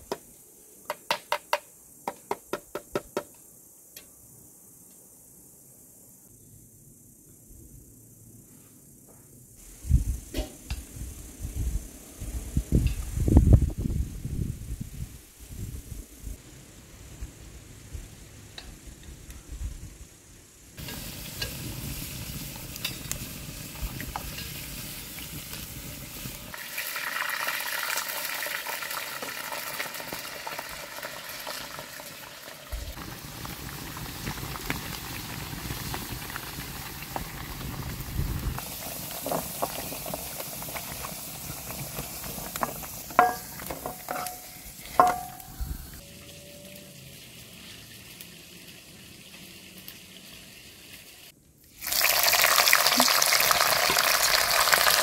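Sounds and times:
food sizzling in a frying pan: 20.8s - 46.1s, 46.9s - 55.0s.

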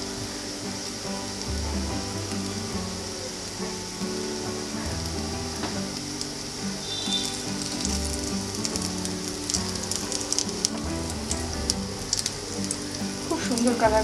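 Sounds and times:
patties sizzling in oil: 2.2s - 14.0s.

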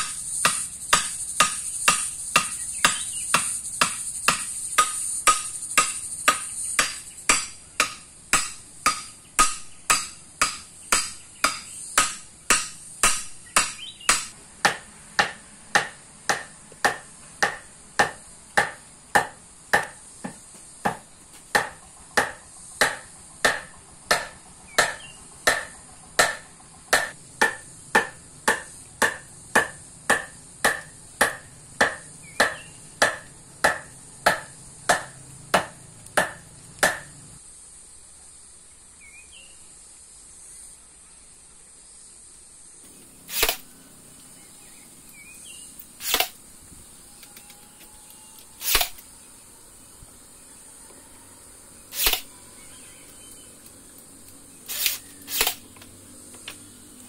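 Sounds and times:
hand tool striking sharp knocks: 0.0s - 37.2s.

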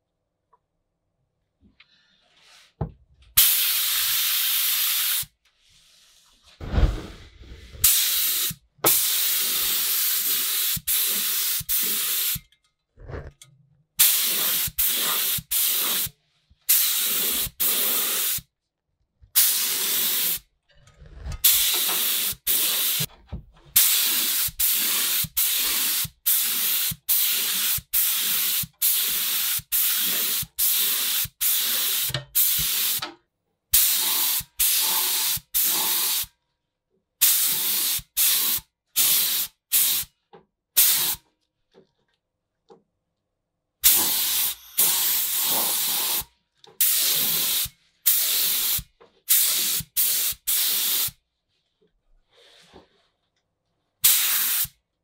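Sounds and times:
spray gun hissing in bursts: 3.4s - 5.3s, 7.8s - 12.4s, 14.0s - 16.1s, 16.7s - 18.4s, 19.4s - 20.4s, 21.4s - 23.1s, 23.8s - 33.0s, 33.8s - 36.3s, 37.2s - 40.1s, 40.8s - 41.2s, 43.8s - 46.2s, 46.8s - 51.1s, 54.0s - 54.7s.

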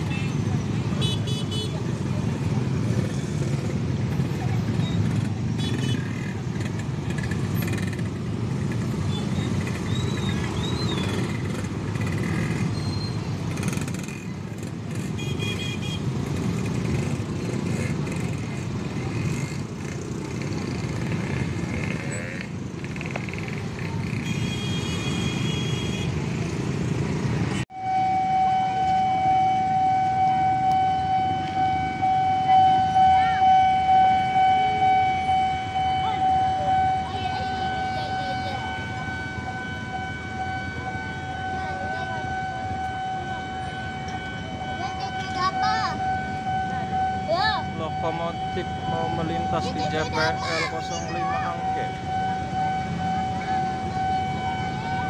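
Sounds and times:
level crossing warning alarm: 27.7s - 55.0s
voices: 31.5s - 55.0s.

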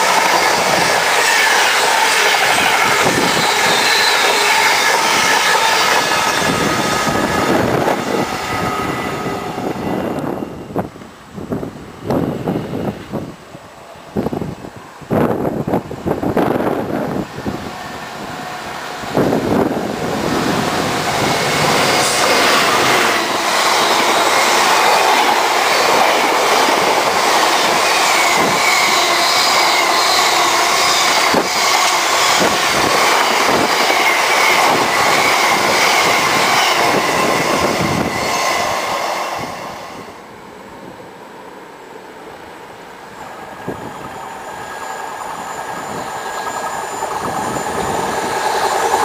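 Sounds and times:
train wheels rushing on rails: 0.0s - 41.0s, 42.1s - 49.0s
thin wheel squeal: 1.2s - 7.1s, 44.0s - 49.0s.

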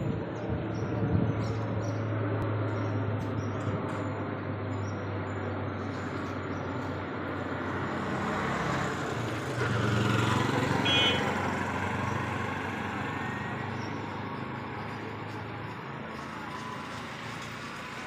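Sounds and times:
traffic noise: 0.0s - 18.0s
vehicle engine passing by: 5.7s - 18.0s.

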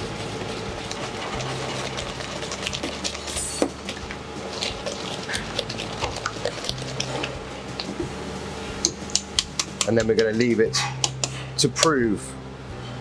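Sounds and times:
low steady hum: 0.0s - 13.0s
wire whisk clicking against metal bowl: 9.1s - 11.4s.

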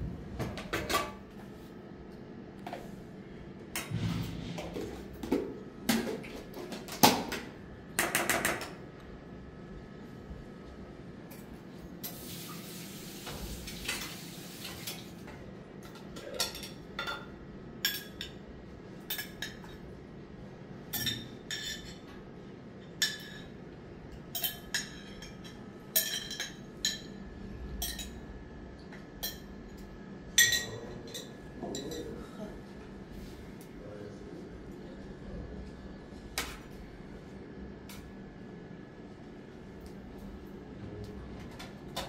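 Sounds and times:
dishes and pots clinking: 15.8s - 18.4s, 19.0s - 19.8s, 20.9s - 22.2s, 22.9s - 23.6s, 24.3s - 27.2s, 27.8s - 28.2s, 29.1s - 32.2s.

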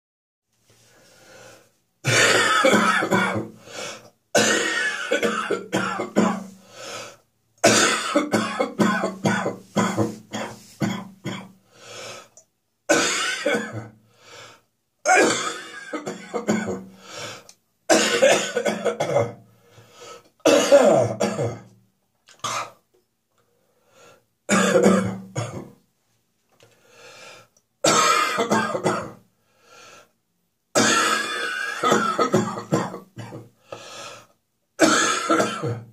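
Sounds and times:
person coughing: 2.0s - 3.6s, 4.4s - 6.5s, 7.6s - 11.6s, 12.9s - 14.0s, 15.1s - 16.9s, 17.9s - 19.4s, 20.4s - 21.7s, 22.4s - 22.8s, 24.5s - 25.7s, 27.9s - 29.2s, 30.8s - 33.5s, 34.8s - 35.9s.

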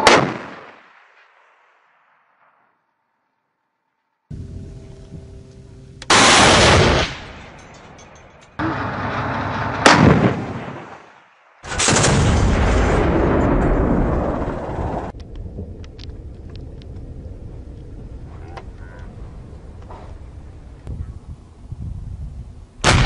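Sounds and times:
rocket fire roar: 6.0s - 7.5s, 8.6s - 23.0s
sharp crack: 6.0s - 17.1s
wind noise: 12.1s - 23.0s.

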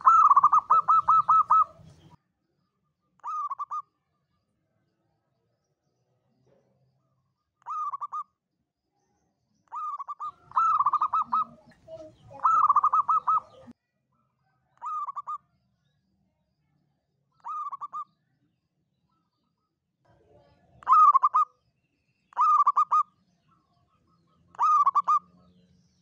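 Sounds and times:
dove cooing: 0.0s - 2.2s, 3.2s - 3.8s, 9.7s - 13.7s, 17.5s - 18.0s, 20.8s - 21.5s, 22.4s - 23.0s, 24.6s - 25.3s.

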